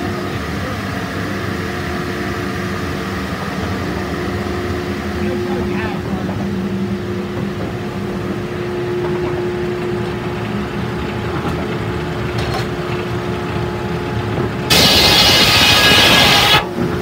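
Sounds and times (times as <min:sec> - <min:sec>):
circular saw humming: 0:14.7 - 0:16.7.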